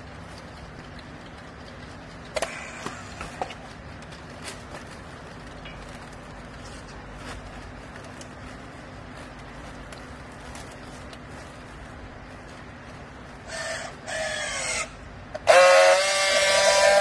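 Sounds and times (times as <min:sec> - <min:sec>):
light ticks: 0:00.0 - 0:06.6
sharp plastic clicks: 0:00.0 - 0:06.6.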